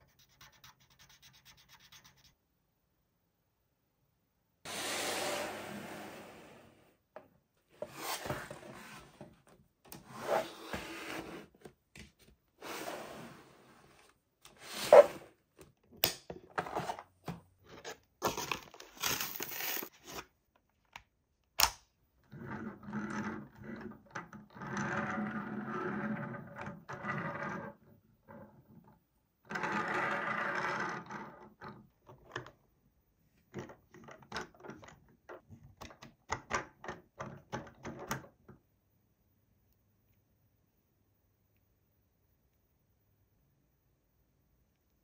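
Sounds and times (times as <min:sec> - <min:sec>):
packaging scraping and rustling: 0:18.2 - 0:20.2.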